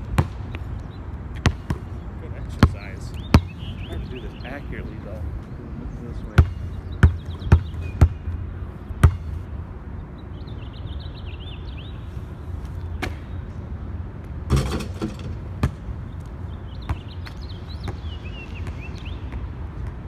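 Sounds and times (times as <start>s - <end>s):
basketball bouncing on concrete: 0.0s - 0.7s, 1.3s - 1.9s, 2.5s - 3.6s, 6.4s - 8.4s, 9.0s - 9.4s, 14.5s - 15.9s, 16.8s - 20.0s.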